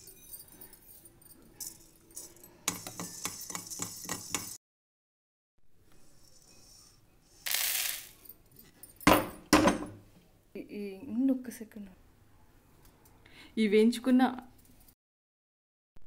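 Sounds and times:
spices rattling in a dry pan: 1.6s - 4.6s.

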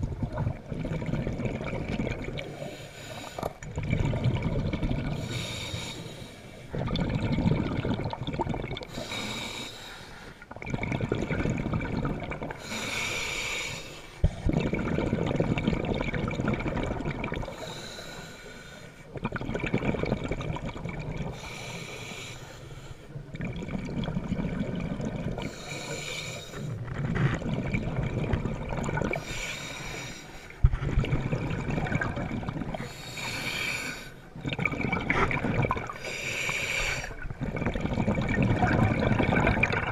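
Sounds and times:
bubbling exhaust: 0.0s - 2.8s, 3.4s - 5.7s, 6.7s - 9.3s, 10.5s - 12.8s, 14.2s - 17.7s, 23.3s - 25.8s, 30.6s - 39.9s
diver inhaling through regulator: 2.4s - 3.6s, 5.1s - 6.7s, 8.9s - 10.4s, 12.5s - 14.5s, 17.5s - 19.1s, 21.3s - 23.3s, 25.4s - 26.8s, 29.0s - 30.8s, 32.6s - 34.4s, 35.3s - 37.8s.

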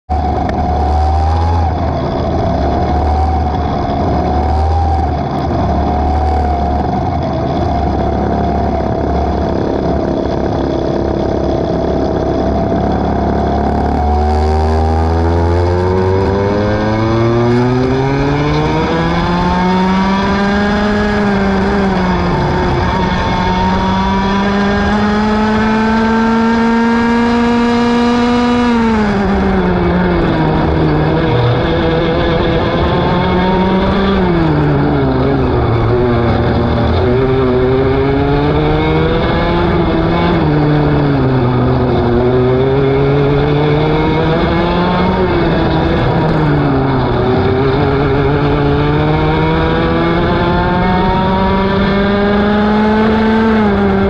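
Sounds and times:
kart engine revving: 0.1s - 54.0s.

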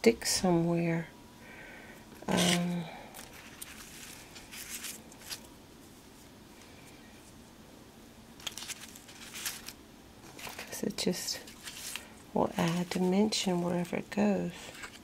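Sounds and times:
paper rustling: 2.3s - 5.5s, 8.4s - 10.8s, 11.4s - 15.0s.

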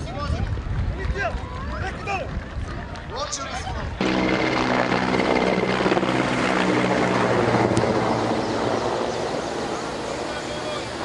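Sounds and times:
motorcycle engines droning: 4.0s - 11.0s.

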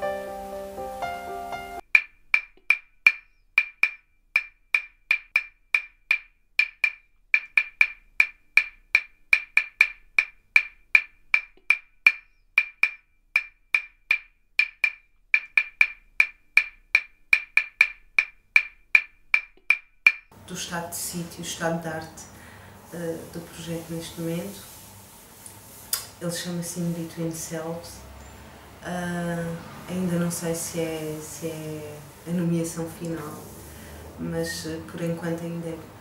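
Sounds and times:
piano passage: 0.0s - 1.8s
wood-block-like clicks: 1.8s - 20.4s.

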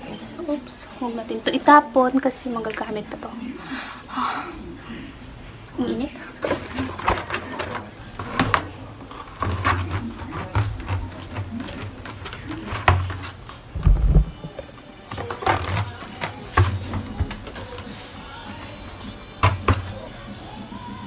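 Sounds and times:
dull low thumps: 13.7s - 14.6s.

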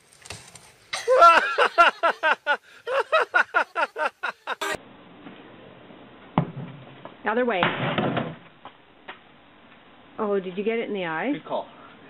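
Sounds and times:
person laughing or whooping: 1.0s - 4.8s.

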